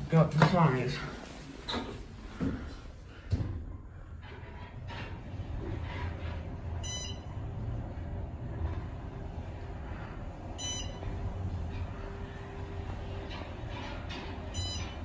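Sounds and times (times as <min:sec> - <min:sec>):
elevator low rumble: 0:00.0 - 0:15.0
short high beeps: 0:10.6 - 0:11.0.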